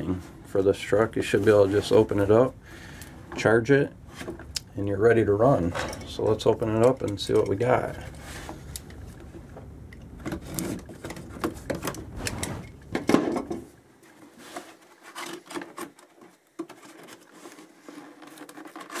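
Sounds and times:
cardboard box scraping and rubbing: 16.7 - 19.0.

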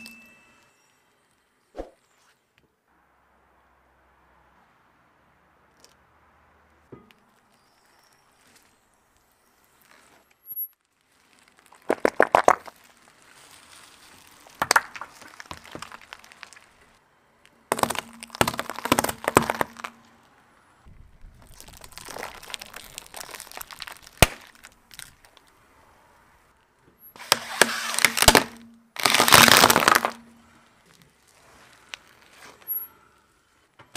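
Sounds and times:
objects crunching under a tyre: 6.8 - 33.9
loud crack: 20.9 - 25.5, 27.2 - 30.4.

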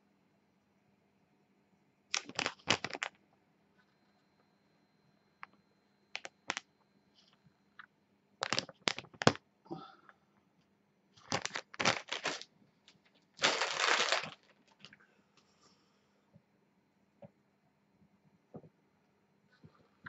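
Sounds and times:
plastic bag crinkling: 2.1 - 3.2, 8.4 - 9.4, 11.2 - 12.5, 13.3 - 15.0.

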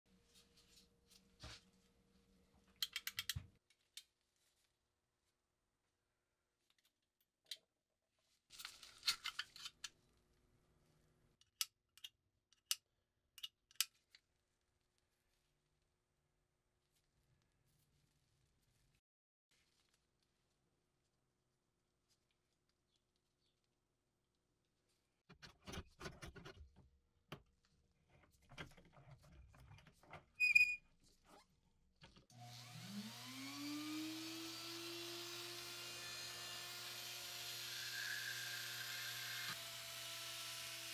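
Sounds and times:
short sharp squeak: 30.4 - 31.4
rotary tool whine: 32.4 - 40.9.

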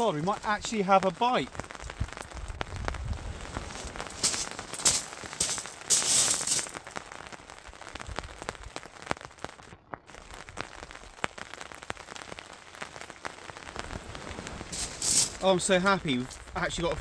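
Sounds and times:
raindrops ticking: 0.0 - 17.0
steady rain: 0.0 - 17.0
short loud hiss: 4.2 - 6.7, 14.6 - 15.5.

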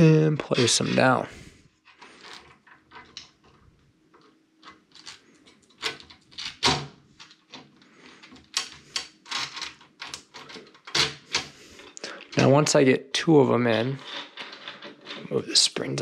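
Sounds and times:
clicks and knocks of parts handled: 1.8 - 12.5, 14.1 - 15.3.

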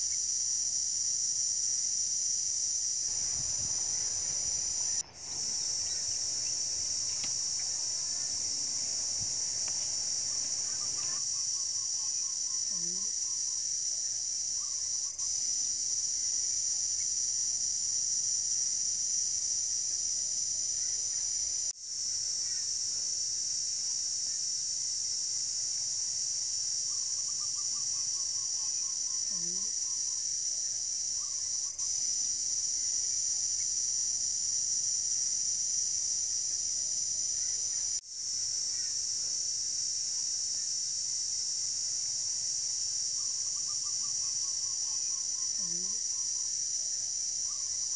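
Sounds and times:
insects droning: 0.0 - 47.9
faint bird calls: 3.1 - 12.6.

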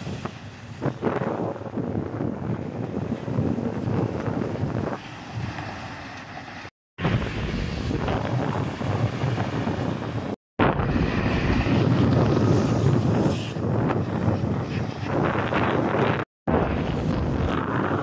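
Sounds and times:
trucks passing on highway: 0.0 - 18.0
wind buffeting microphone: 0.0 - 18.0.

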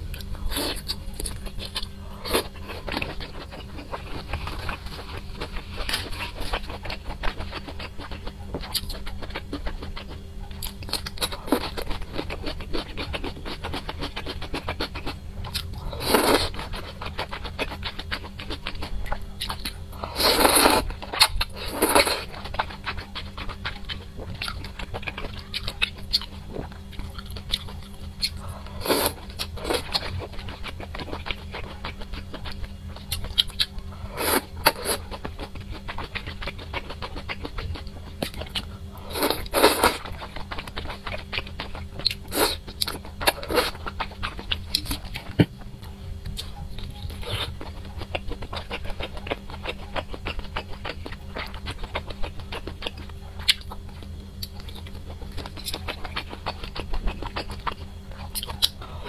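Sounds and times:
steady low hum: 0.0 - 59.0
wet chewing and lip smacking: 0.2 - 58.9.

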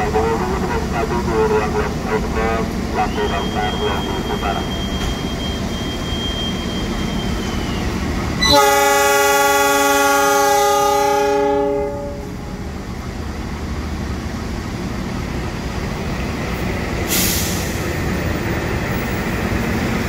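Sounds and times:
locomotive air horn: 0.0 - 7.6, 8.4 - 12.5
locomotive rumbling: 0.0 - 20.0
air hiss: 17.1 - 17.8.

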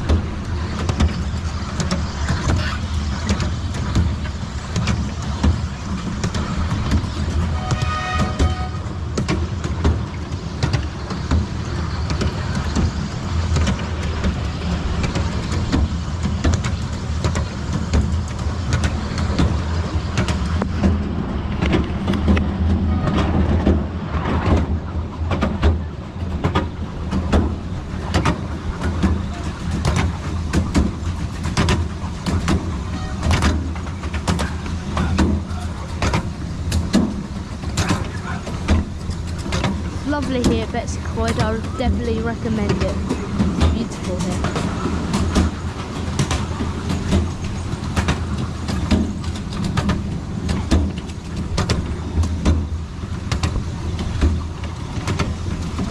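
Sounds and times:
train rumbling on track: 0.0 - 55.9
wheels clicking and rattling: 0.0 - 55.9.

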